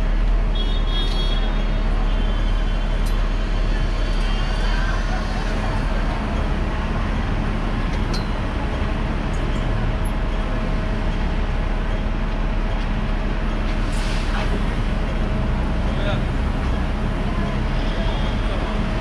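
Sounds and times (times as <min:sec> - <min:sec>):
low rumble of street traffic: 0:00.0 - 0:19.0.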